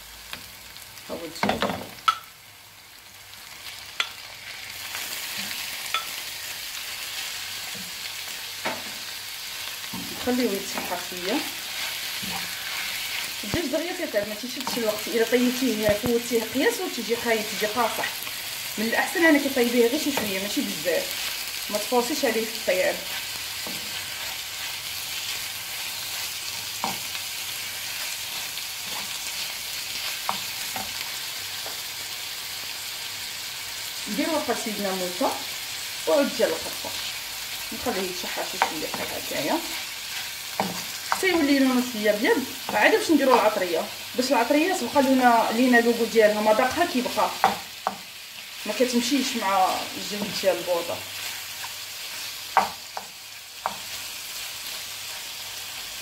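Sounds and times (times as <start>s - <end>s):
chicken and onion sizzling in a pan: 0.0s - 56.0s
wooden spoon scraping pan: 9.8s - 13.4s.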